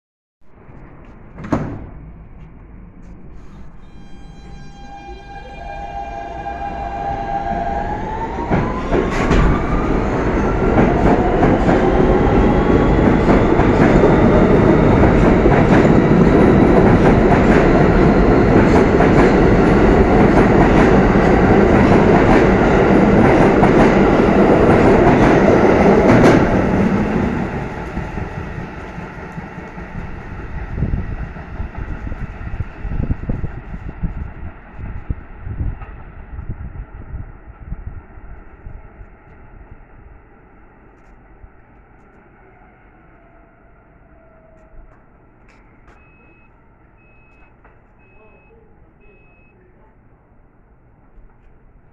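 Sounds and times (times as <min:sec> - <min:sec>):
train electric whine: 0:03.3 - 0:35.6.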